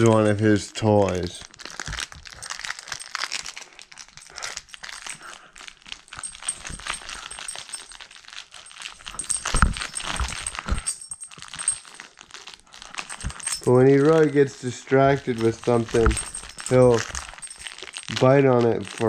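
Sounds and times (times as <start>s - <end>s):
collar tags jingling: 0.0s - 19.0s
heavy thumps: 8.9s - 12.0s, 13.0s - 14.3s, 15.2s - 18.1s.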